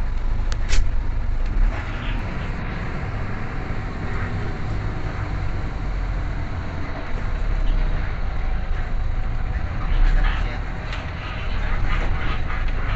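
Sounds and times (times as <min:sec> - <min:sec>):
bus engine and road rumble: 0:00.0 - 0:12.9.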